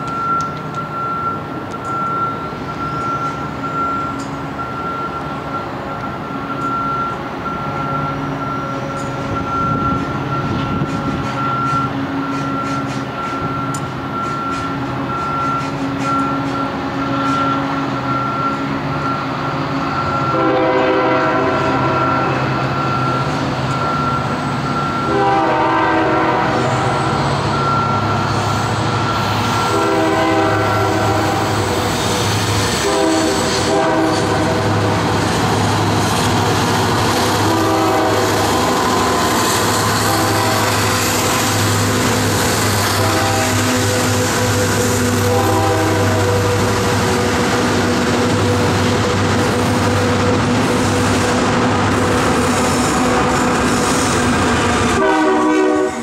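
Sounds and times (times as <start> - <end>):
diesel locomotives rumbling past: 0.0 - 56.0
locomotive horn blasts: 20.1 - 22.6, 24.9 - 27.1, 29.4 - 31.8, 32.8 - 35.0, 37.4 - 47.5, 54.9 - 56.0.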